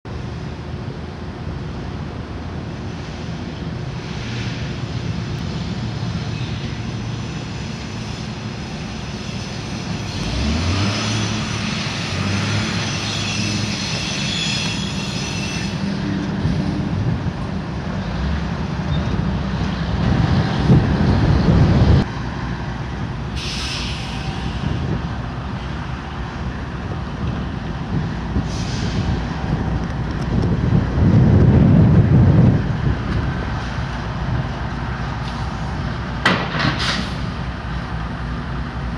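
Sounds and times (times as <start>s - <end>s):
diesel locomotive engines rumbling: 0.1s - 38.9s
high-pitched wheel squeal: 7.3s - 16.6s.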